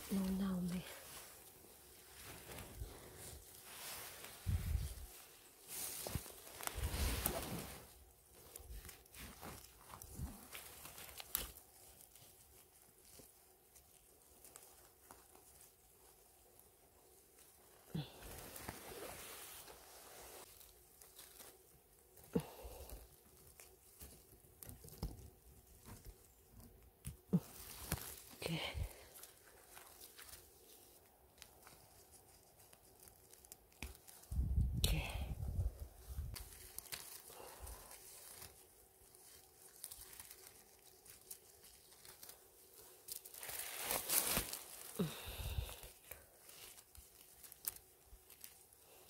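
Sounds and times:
dry leaves rustling and crackling: 0.0s - 49.0s
small clicks and snaps: 32.6s - 34.9s.

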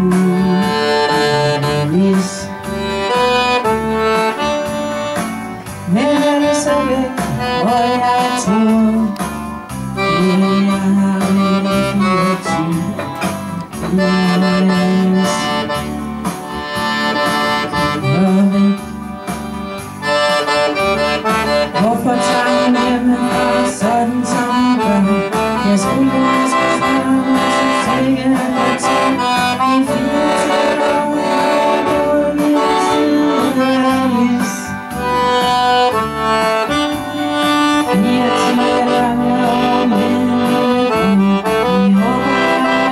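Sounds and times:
accordion playing tune: 0.0s - 42.9s
woman singing into microphone: 21.8s - 34.7s, 37.9s - 42.9s.

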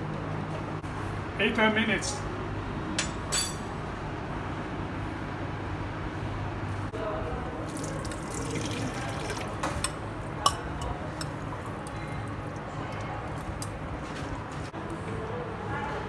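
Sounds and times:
water splashing into a sink: 7.7s - 10.0s.

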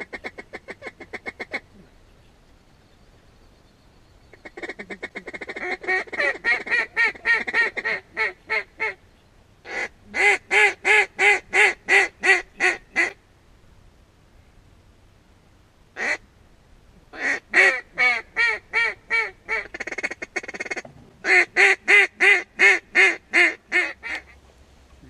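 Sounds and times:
duck quacking: 4.4s - 9.0s, 9.7s - 13.2s, 17.2s - 24.4s.

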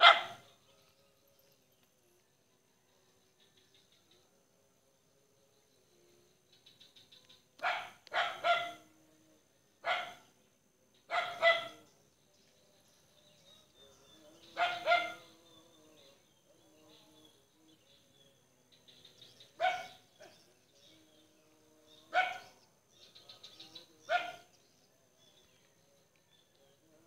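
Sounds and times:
dog barking: 0.0s - 0.4s, 7.6s - 8.9s, 9.8s - 10.3s, 11.1s - 11.8s, 14.6s - 15.3s, 19.6s - 20.4s, 22.1s - 22.6s, 24.1s - 24.5s.

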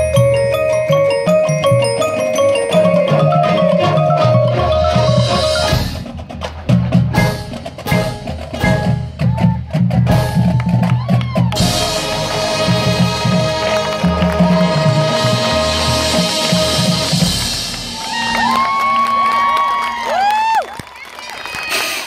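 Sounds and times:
drum and percussion hits: 0.0s - 18.7s
marimbas and percussion: 0.0s - 20.3s
marching band sustained chord: 11.6s - 18.1s.

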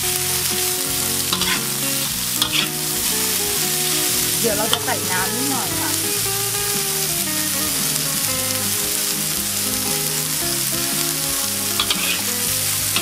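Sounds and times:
food sizzling in a wok: 0.0s - 13.0s
soft background music: 0.0s - 13.0s.

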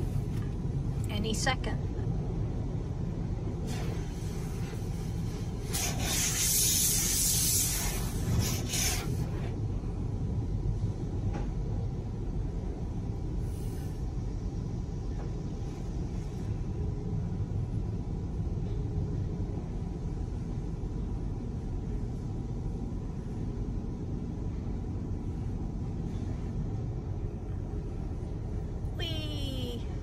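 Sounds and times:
low rumble of wash tunnel: 0.0s - 30.0s
water spray hissing on car: 3.6s - 9.6s, 13.4s - 14.0s.

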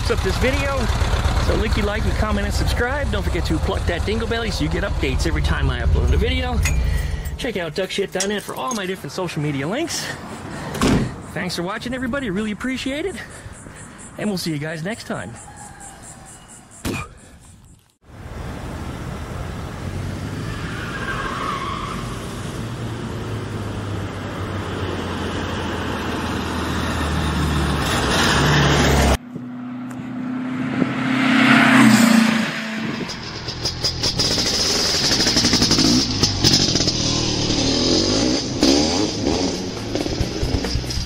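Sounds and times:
vehicle engine running: 0.0s - 8.0s, 32.7s - 41.0s
vehicle passing by: 22.2s - 33.7s.

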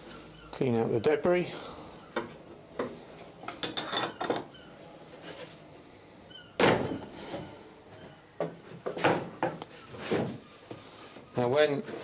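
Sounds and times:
loud wooden thunk: 6.6s - 7.0s.

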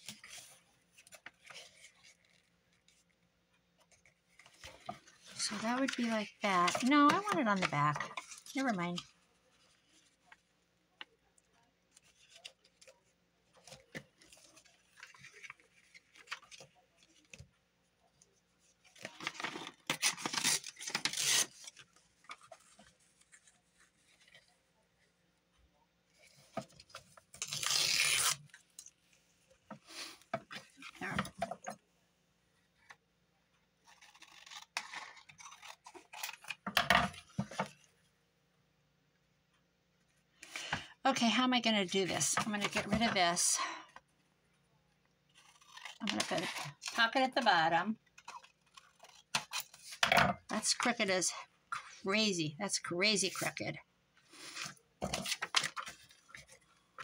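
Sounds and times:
packaging rustling and ripping: 18.9s - 24.5s, 27.0s - 29.0s.

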